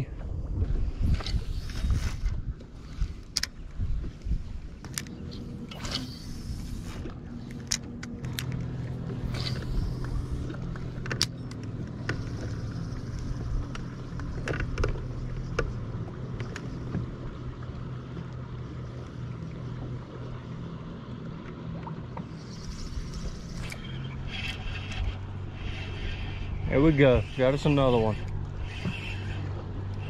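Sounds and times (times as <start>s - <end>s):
boat motor humming: 0.0s - 30.0s
sharp clicks and knocks: 13.6s - 15.8s.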